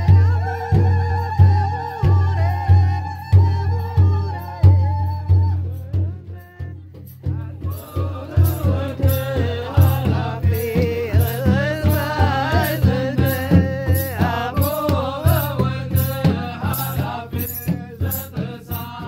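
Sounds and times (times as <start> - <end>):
person singing: 0.0 - 19.0
rattling percussion: 0.0 - 19.0
steady drum beat: 0.0 - 19.0.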